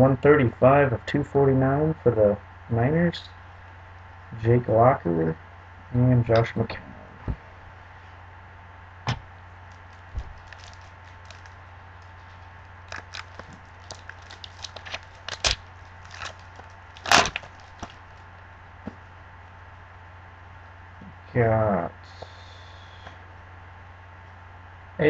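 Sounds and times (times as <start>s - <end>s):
steady low hum: 0.0s - 25.0s
foil wrapper tearing and crinkling: 9.7s - 18.3s.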